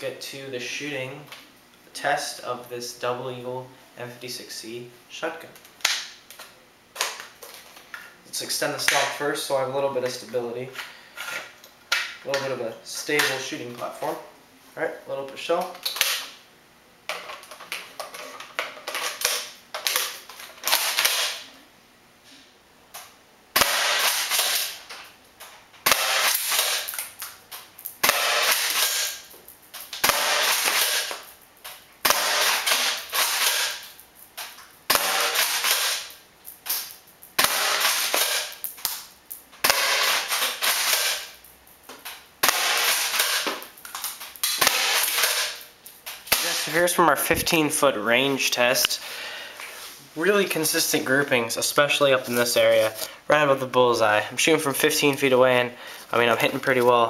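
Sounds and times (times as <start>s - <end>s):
airsoft shotgun shots: 20.7s - 21.4s, 23.6s - 24.8s, 25.8s - 26.9s, 28.0s - 29.2s, 30.0s - 31.2s, 32.0s - 33.8s, 34.9s - 36.1s, 37.4s - 38.6s, 39.6s - 41.3s, 42.4s - 43.5s, 44.5s - 45.6s.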